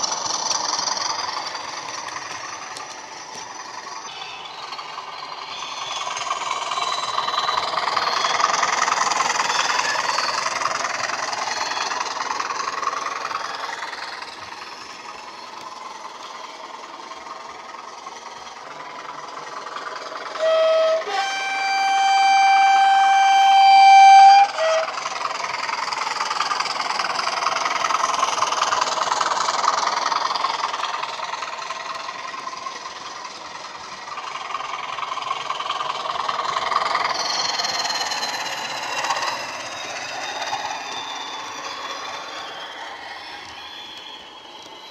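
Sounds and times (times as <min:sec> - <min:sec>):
simulated diesel engine sound: 0:00.0 - 0:44.9
two-tone locomotive horn: 0:20.3 - 0:25.1.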